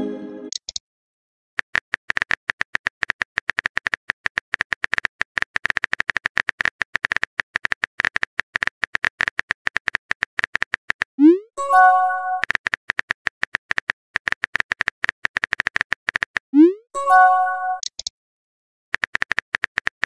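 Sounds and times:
phone keyboard key clicks: 17.8s - 18.1s.

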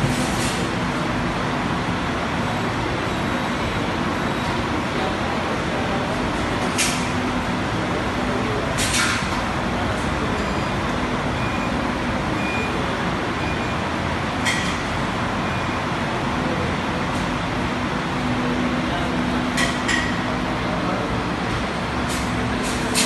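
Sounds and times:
dishwasher machine noise: 0.0s - 0.9s, 8.3s - 15.8s, 18.4s - 23.0s.

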